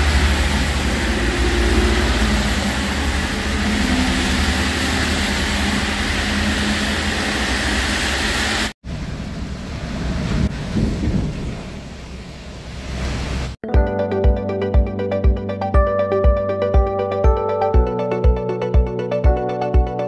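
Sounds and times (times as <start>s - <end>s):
tyres hissing on wet road: 0.0s - 10.8s
bus rumbling in rain from inside: 0.0s - 13.6s
traffic engine rumble: 0.0s - 13.6s.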